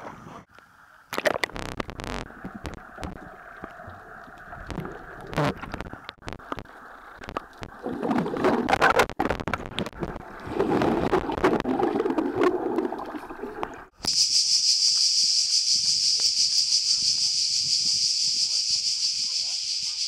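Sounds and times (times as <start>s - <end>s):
muffled underwater sloshing: 1.1s - 14.0s
bubbling churn of body plunging: 1.2s - 14.0s.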